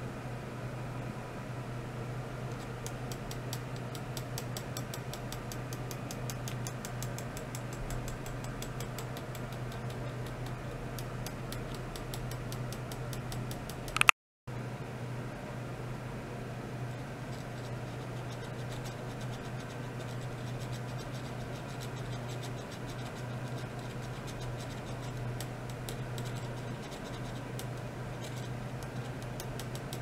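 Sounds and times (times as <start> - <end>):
electrical hum and hiss: 0.0 - 30.0
fast even ticking: 2.6 - 14.1.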